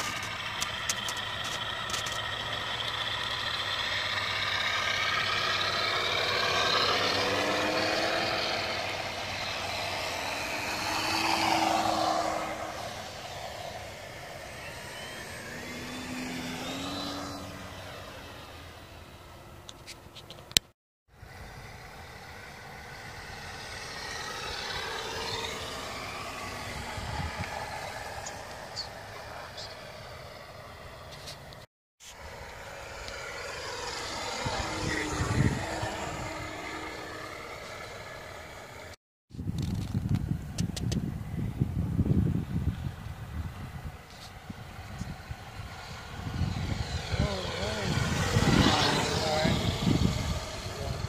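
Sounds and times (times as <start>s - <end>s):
model airplane motors and propellers: 0.0s - 51.0s.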